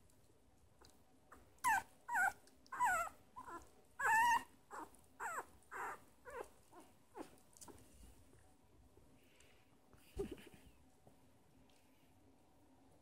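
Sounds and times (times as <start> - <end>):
puppy whining and squeaking: 1.6 - 7.8.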